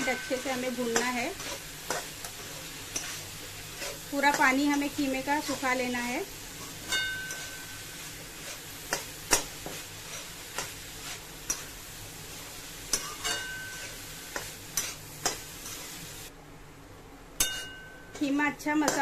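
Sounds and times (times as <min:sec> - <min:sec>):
metal spatula scraping a pan: 0:00.0 - 0:16.0
low sizzle: 0:00.0 - 0:19.0
spatula clinking against pan: 0:06.8 - 0:07.8, 0:12.9 - 0:13.9, 0:17.4 - 0:18.2.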